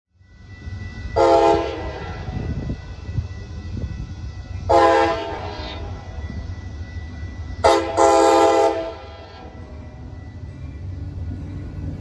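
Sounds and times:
train air horn: 1.2s - 2.5s, 4.7s - 6.1s, 7.6s - 9.5s.

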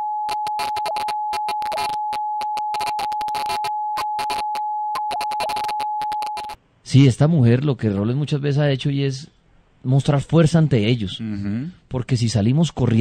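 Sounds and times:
crackling static: 0.0s - 6.6s
telephone line tone: 0.0s - 6.6s.

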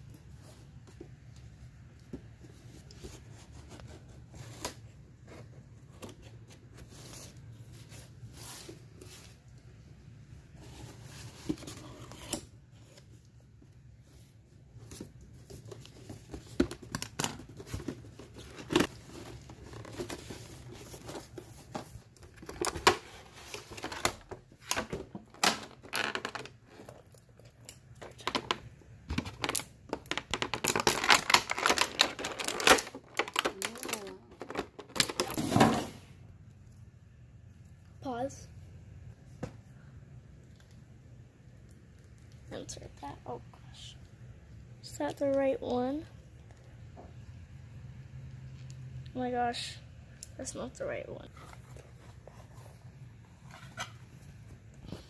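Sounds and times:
plastic tray crinkling: 29.2s - 35.5s.

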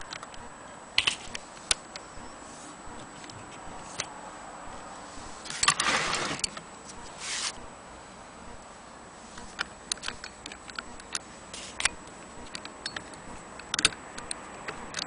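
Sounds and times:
sewing machine scraping rush: 5.5s - 6.5s
sewing machine crank clicks: 5.5s - 6.6s.

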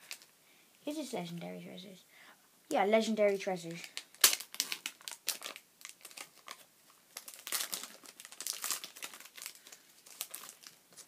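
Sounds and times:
foil wrapper crinkling: 3.7s - 11.0s.

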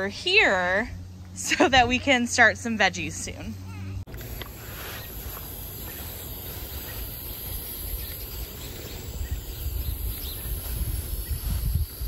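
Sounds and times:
low rumble on microphone: 6.5s - 12.0s.

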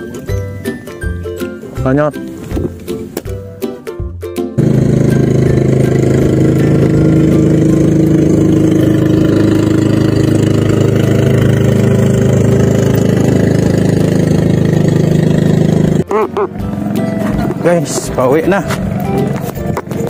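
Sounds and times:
small boat engine running: 4.6s - 20.0s.

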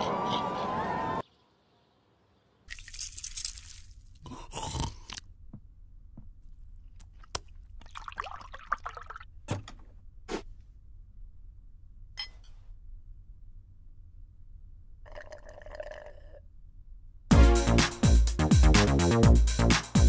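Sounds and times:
low steady hum: 4.9s - 17.3s
milk pouring into a mug: 7.8s - 9.2s.

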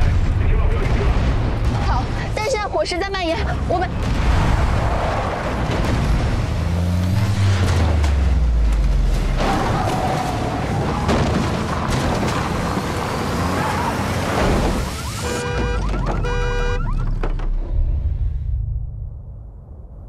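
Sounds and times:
suv engine: 3.6s - 17.7s
deep falling boom: 17.4s - 20.0s.

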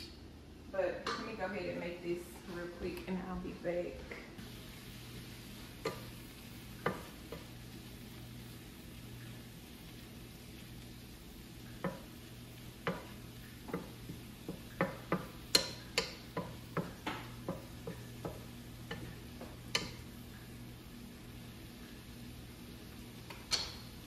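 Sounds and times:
faint steady hum: 0.0s - 24.0s
spatula knocking on frying pan: 5.8s - 6.2s, 6.8s - 7.6s, 11.8s - 20.1s.

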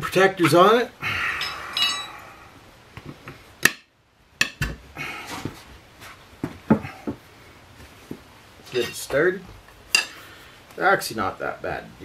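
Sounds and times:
tire irons clinking on metal: 1.2s - 2.3s.

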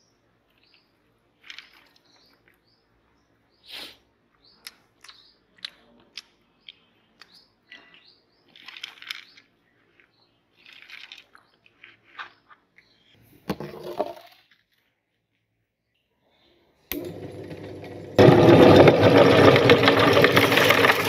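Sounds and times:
popcorn rustling and crinkling: 0.4s - 2.7s, 7.6s - 13.2s, 13.8s - 15.6s, 18.2s - 21.0s.

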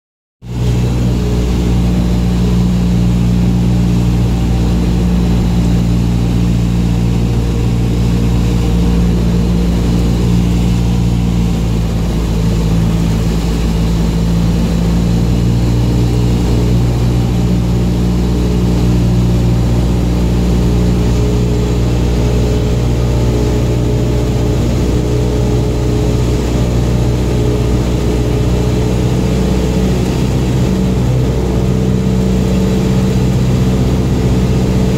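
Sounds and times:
light aircraft engine drone: 0.4s - 34.9s.

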